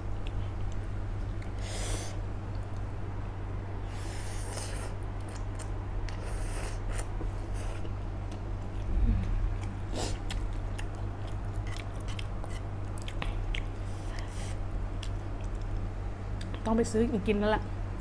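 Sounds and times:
steady low hum: 0.0 - 18.0
wet chewing and mouth clicks: 5.2 - 16.7.

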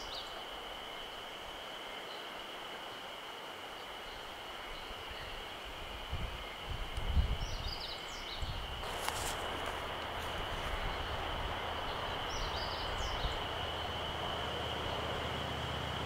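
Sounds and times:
steady high drone: 8.8 - 16.0
bird chirps: 10.6 - 15.0.

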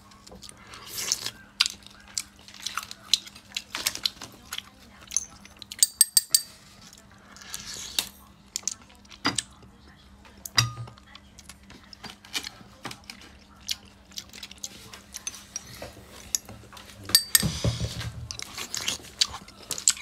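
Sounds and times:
clam shells clinking in metal bowl: 5.2 - 6.6, 17.2 - 17.6.

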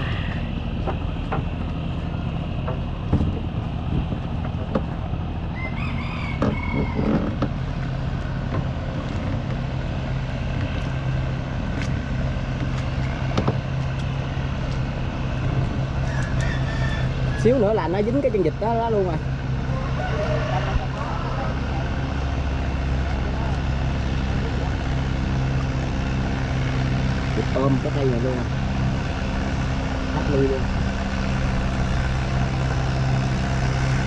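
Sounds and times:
boat engine droning: 0.0 - 34.0
rooster crowing: 5.5 - 7.4, 16.0 - 17.7, 19.7 - 21.9.

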